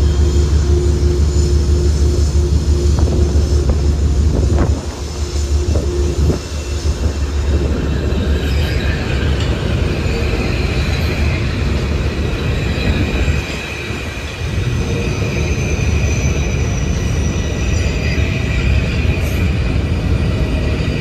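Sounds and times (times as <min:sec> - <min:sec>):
train wheels rumbling on rail: 0:00.0 - 0:21.0
wind buffeting microphone: 0:02.6 - 0:10.0.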